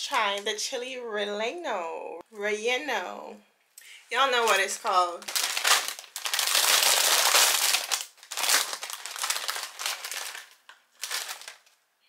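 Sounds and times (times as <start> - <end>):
plastic chip bag crinkling: 4.3 - 11.8.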